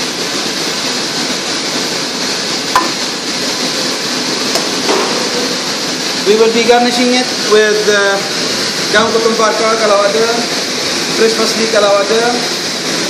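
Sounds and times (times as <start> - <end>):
commercial kitchen rushing noise: 0.0 - 13.0.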